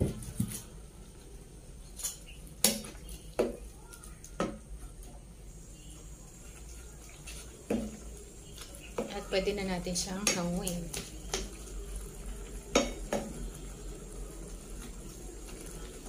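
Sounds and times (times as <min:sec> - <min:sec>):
wooden spatula stirring in pan: 0:06.0 - 0:16.0.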